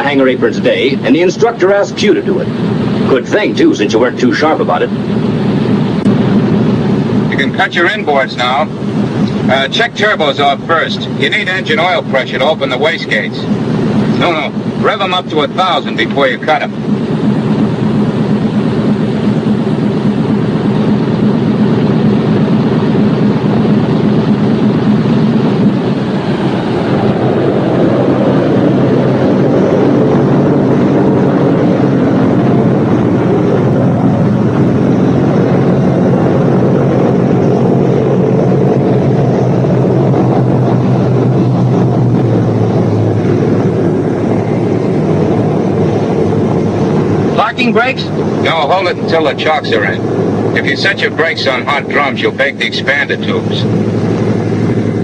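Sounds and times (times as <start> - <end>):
radial engines propeller drone: 0.0 - 55.0.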